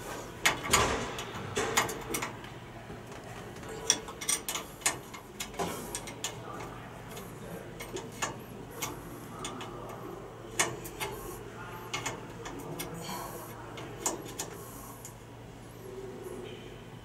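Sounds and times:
spanner clicking on metal bolt: 3.9s - 7.2s.

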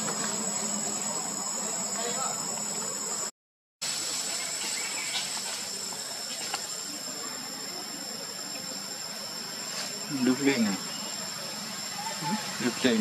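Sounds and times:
insects droning: 0.0s - 13.0s.

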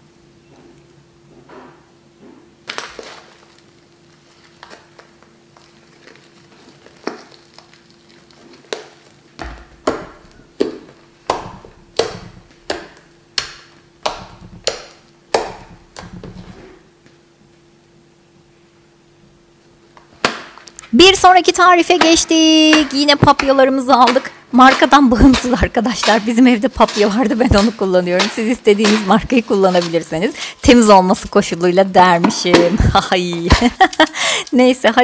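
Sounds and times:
slime popping crackles: 2.6s - 16.6s.

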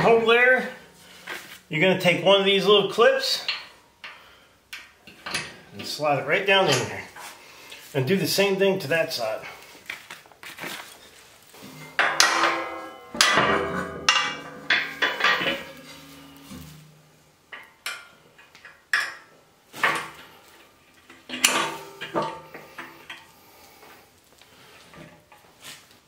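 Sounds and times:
metal forks clanking: 11.6s - 16.9s.

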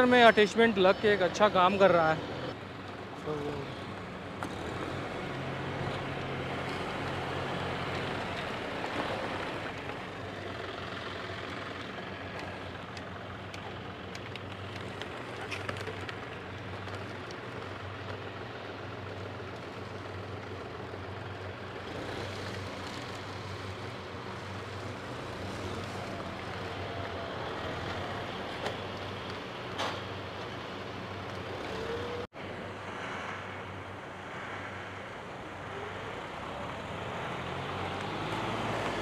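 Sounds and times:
tractor diesel engine running: 5.3s - 31.6s.

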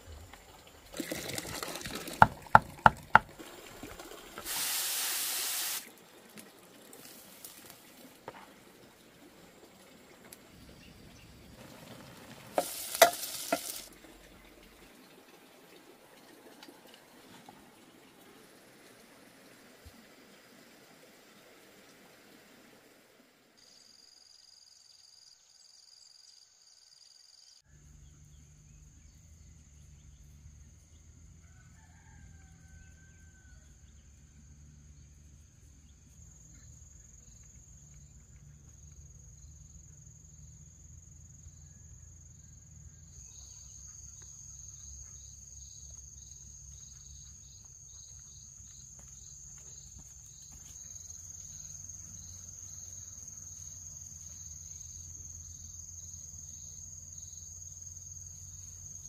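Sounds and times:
insects droning: 0.0s - 15.1s, 16.7s - 59.0s
faint rooster crowing: 31.3s - 34.2s.

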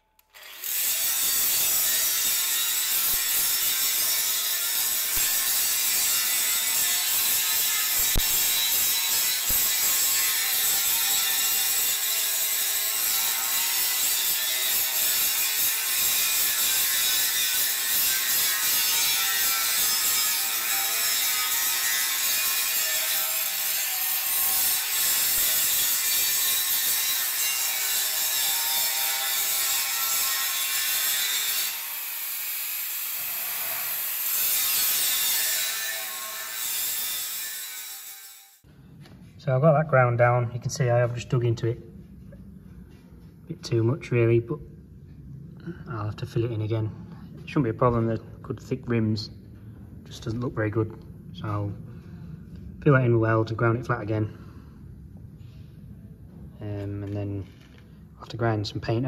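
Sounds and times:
angle grinder grinding steel: 0.4s - 38.6s.

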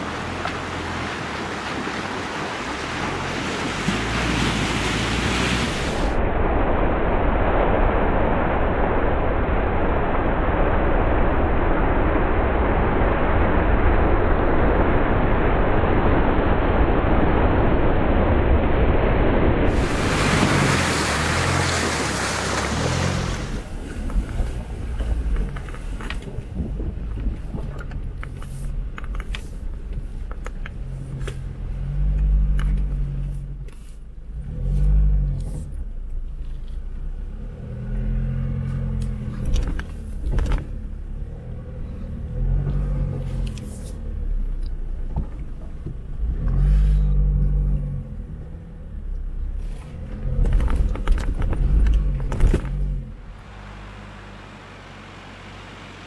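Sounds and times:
loud rush of noise: 4.7s - 27.2s
off-road vehicle engine revving: 19.7s - 28.8s, 34.3s - 36.0s, 37.0s - 44.7s, 46.0s - 56.0s
tyres clicking and knocking on rough ground: 21.8s - 31.5s, 50.1s - 53.0s.

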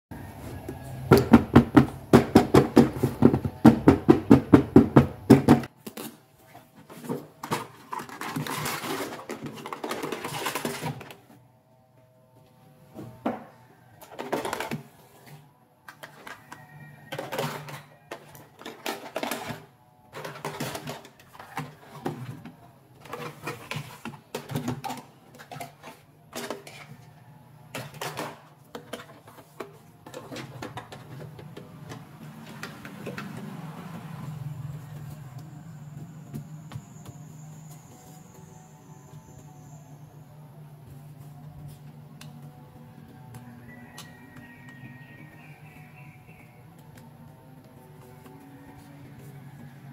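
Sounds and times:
plastic toys clattering: 6.8s - 11.3s, 14.0s - 15.2s, 15.8s - 27.1s, 27.7s - 33.6s.

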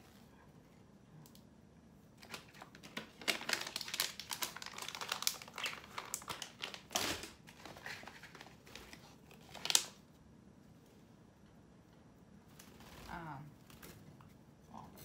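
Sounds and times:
plastic pouch crinkling: 2.2s - 10.0s.

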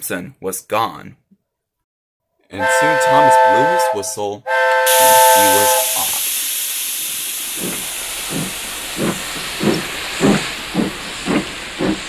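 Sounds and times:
steam locomotive chuffing: 2.6s - 12.0s
steam hissing: 4.8s - 12.0s.

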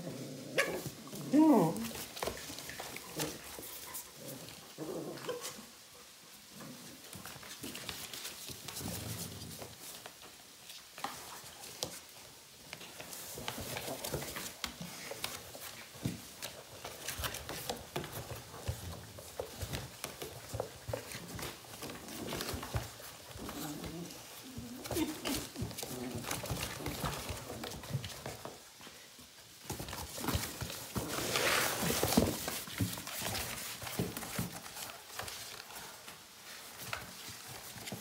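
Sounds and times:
puppies scratching cardboard box: 0.6s - 5.8s, 6.8s - 38.0s
puppy vocal sounds: 2.7s - 5.8s, 21.4s - 27.6s.

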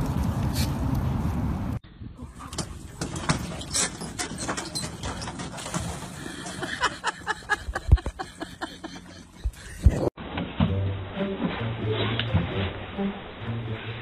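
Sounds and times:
dog's paws on wooden planks: 2.5s - 6.6s.

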